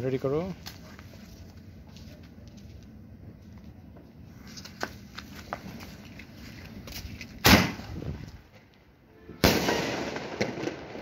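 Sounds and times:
firework bang: 7.4 - 8.1, 9.4 - 11.0.

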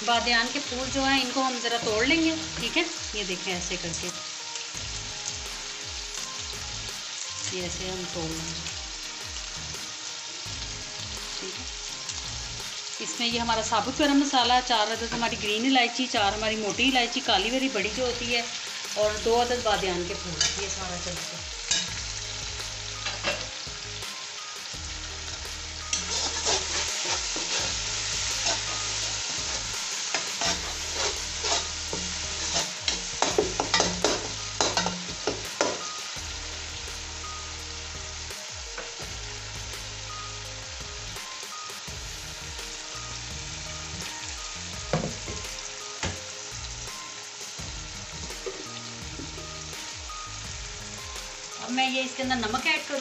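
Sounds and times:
masala sizzling in hot oil: 0.0 - 53.0
spoon scraping and clinking pot: 25.9 - 27.8, 30.1 - 35.0.

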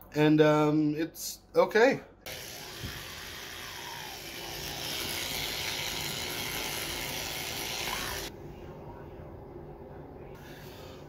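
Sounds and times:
electric toothbrush buzzing: 2.3 - 8.3.

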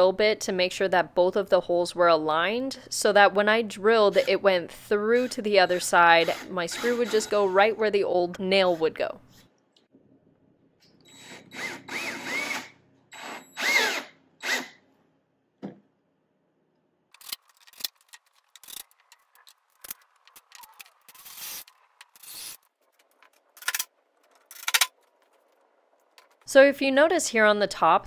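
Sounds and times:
power drill bursts: 11.1 - 14.8.

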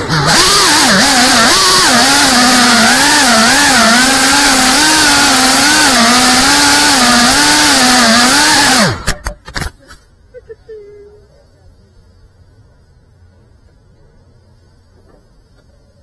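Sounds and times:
quadcopter motors whining: 0.0 - 9.2.

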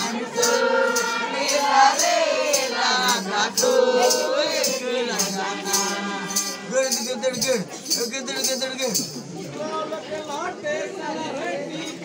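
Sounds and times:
rattling percussion: 0.0 - 9.4
voices singing a folk song: 0.0 - 12.0.

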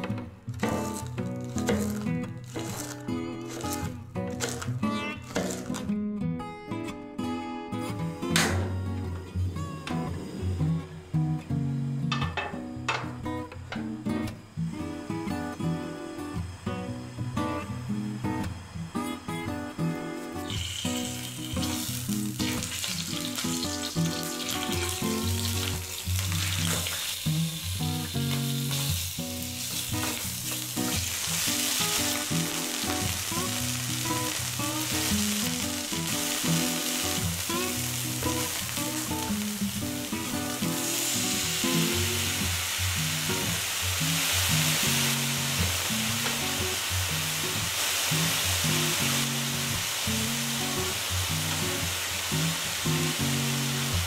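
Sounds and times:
chicken skin sizzling in oil: 0.7 - 5.8, 20.2 - 54.0.

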